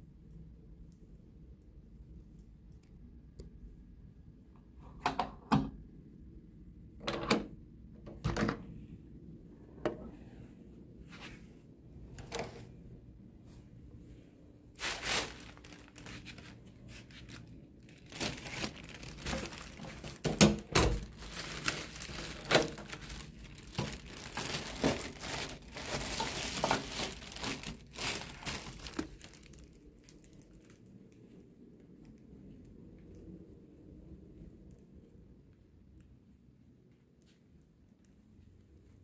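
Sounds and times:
plastic bag crinkling: 0:14.7 - 0:31.2.

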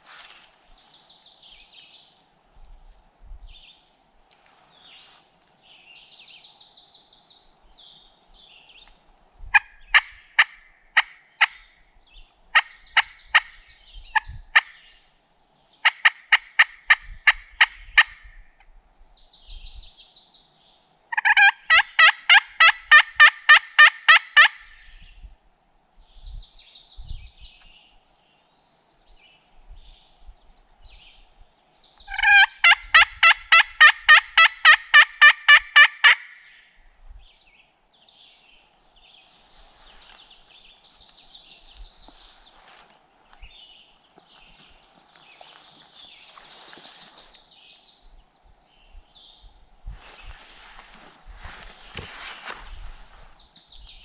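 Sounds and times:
turkey call yelping: 0:21.1 - 0:24.7, 0:32.1 - 0:36.4.

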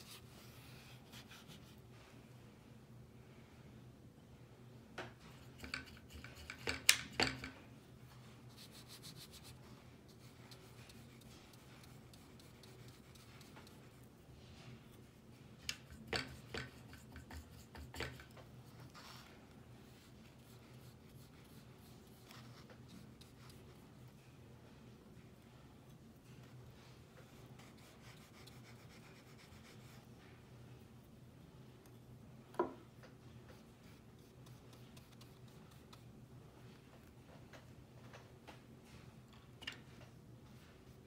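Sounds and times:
paintbrush dabbing on paper: 0:08.4 - 0:24.1, 0:26.8 - 0:30.1, 0:33.5 - 0:36.1
fine rapid scratching: 0:08.5 - 0:14.1.

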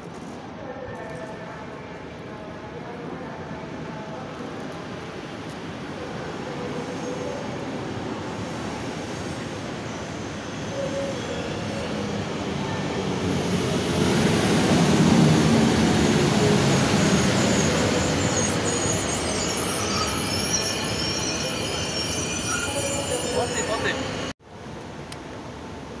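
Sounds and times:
train rolling past: 0:04.0 - 0:24.4
metallic wheel squeals: 0:17.0 - 0:24.3.

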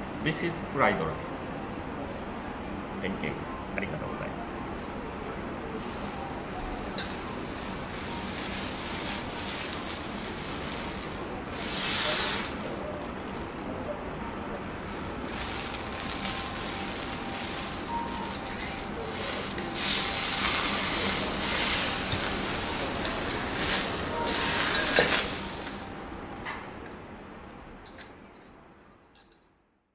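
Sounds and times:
griddle sizzling: 0:04.8 - 0:26.9
beer pouring into glass: 0:05.8 - 0:13.7.

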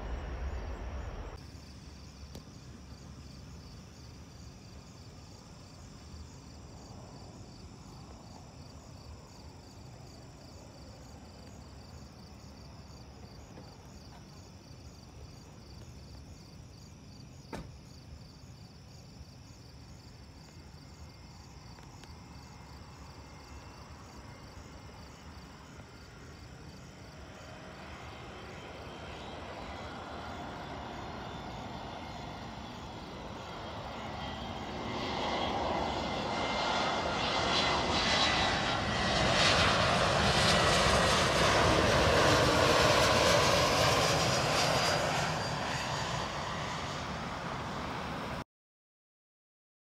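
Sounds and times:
faint low rumble: 0:00.0 - 0:01.4
aircraft engines approaching: 0:00.0 - 0:15.8, 0:19.7 - 0:48.4
crickets chirping: 0:00.0 - 0:48.4.

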